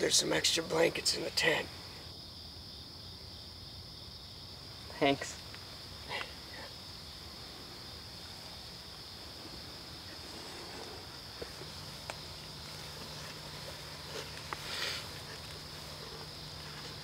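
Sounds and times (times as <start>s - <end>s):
crickets chirping: 0.0s - 17.0s
faint low hum: 6.5s - 17.0s.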